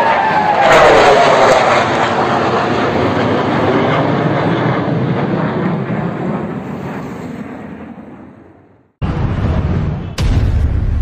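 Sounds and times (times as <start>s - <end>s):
jet fighters roaring overhead: 0.0s - 10.4s.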